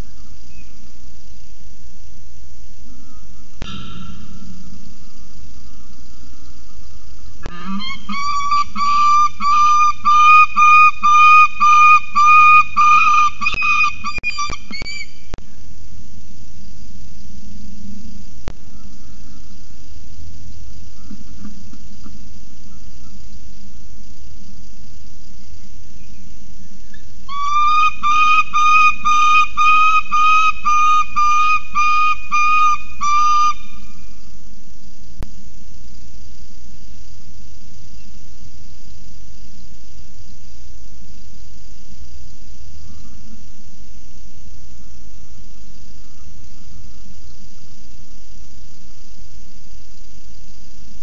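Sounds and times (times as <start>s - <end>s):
steady hiss: 0.0s - 51.0s
young falcon wailing calls: 7.5s - 15.1s, 27.3s - 34.0s.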